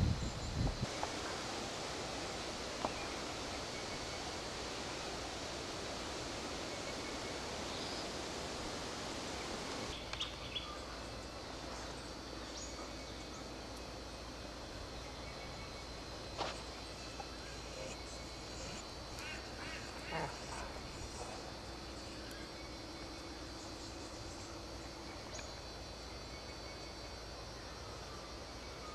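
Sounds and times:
steady rustling hiss: 0.0s - 28.9s.

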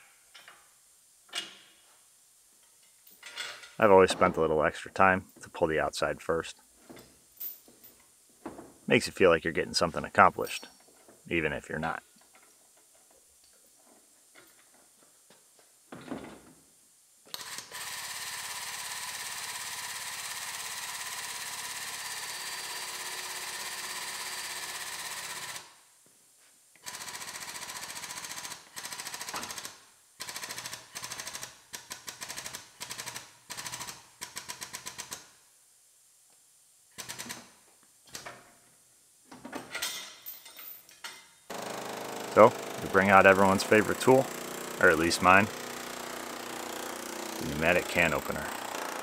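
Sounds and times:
pneumatic metal cutter hammering: 41.5s - 42.9s, 43.8s - 44.8s, 45.5s - 49.0s.

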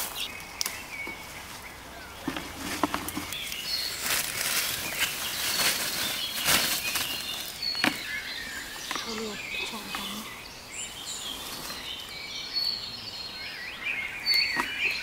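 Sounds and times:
leafy plants rustling: 0.0s - 12.3s
birds chirping: 0.0s - 15.0s
stem snaps: 0.4s - 0.8s.

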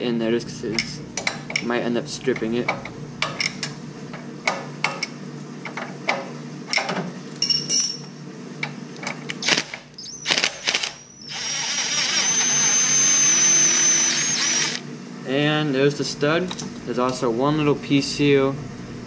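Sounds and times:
wrench clinking on metal nuts: 7.4s - 8.1s
cordless drill whining: 9.4s - 14.8s.

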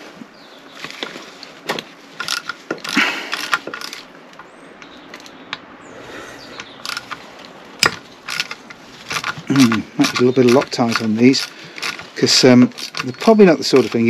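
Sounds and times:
metallic tool clicks and scrapes: 6.6s - 7.2s, 7.8s - 14.0s.

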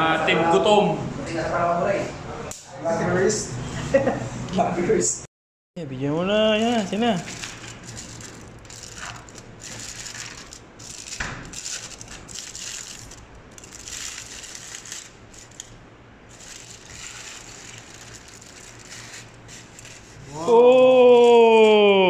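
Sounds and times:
aluminium foil crinkling: 6.5s - 20.4s.

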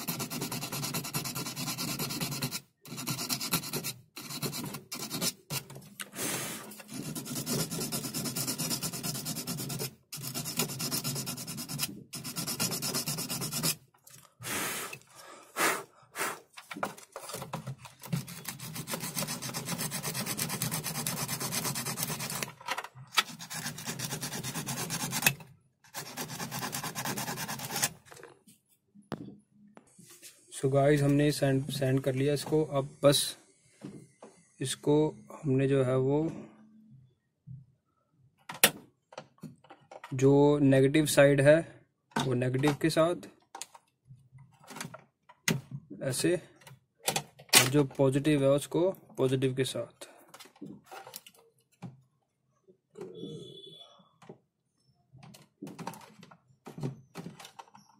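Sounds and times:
sandpaper rubbing on metal: 0.0s - 5.6s, 6.8s - 13.8s, 18.3s - 22.5s, 23.2s - 25.3s, 25.9s - 28.0s.

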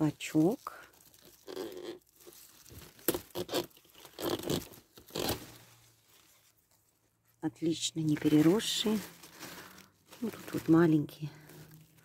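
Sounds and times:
stems cracking and snapping: 0.0s - 5.5s
leaves rustling: 0.0s - 7.1s, 8.0s - 12.0s.

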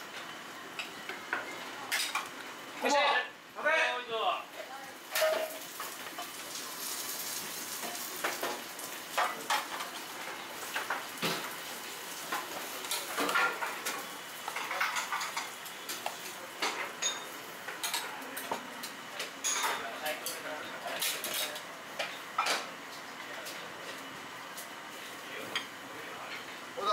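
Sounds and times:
steady sizzle: 0.0s - 26.9s
utensils clinking on trays and bowls: 0.8s - 2.3s, 5.1s - 11.5s, 12.2s - 22.7s.

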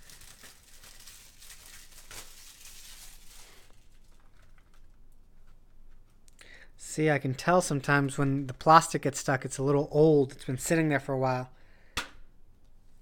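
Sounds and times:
plastic wrap crinkling: 0.0s - 6.3s.

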